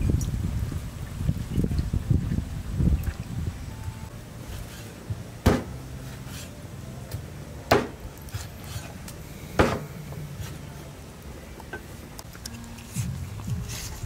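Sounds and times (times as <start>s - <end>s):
cleaver chopping on wooden block: 5.4s - 5.8s, 7.7s - 8.0s, 9.6s - 9.9s.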